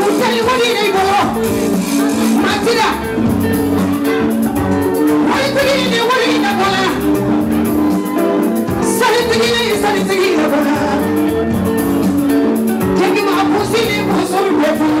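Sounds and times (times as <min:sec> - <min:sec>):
dance music band: 0:00.0 - 0:15.0
woman singing: 0:09.0 - 0:11.1.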